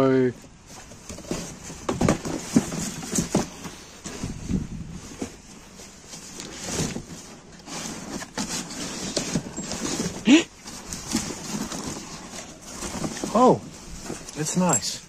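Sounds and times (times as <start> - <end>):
cardboard boxes rustling: 0.4 - 15.0
loud scrape: 6.4 - 14.1.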